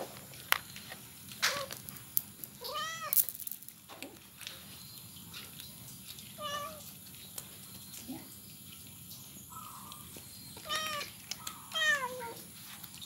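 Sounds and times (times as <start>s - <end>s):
cat meowing: 2.6s - 3.2s, 6.4s - 6.9s, 10.6s - 12.4s.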